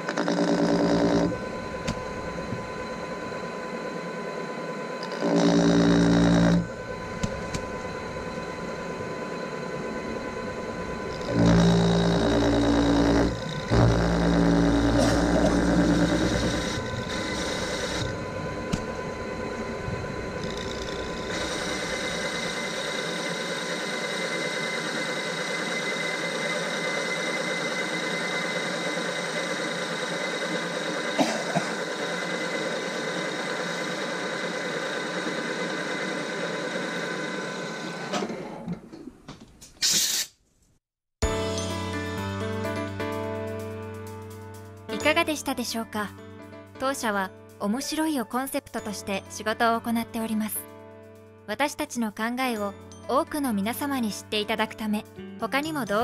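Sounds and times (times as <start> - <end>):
lathe cutting metal bar: 0.0 - 38.6.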